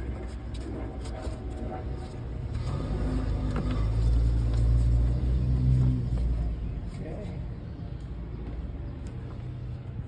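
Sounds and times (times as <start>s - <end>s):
engine rumbling low: 0.0s - 10.0s.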